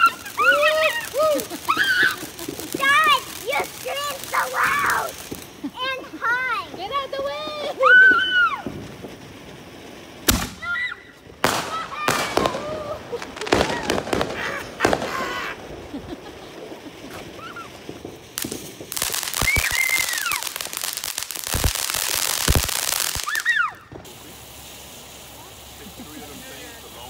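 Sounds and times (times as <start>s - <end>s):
fireworks bangs and pops: 0.0s - 27.0s
fireworks crackling: 0.0s - 27.0s.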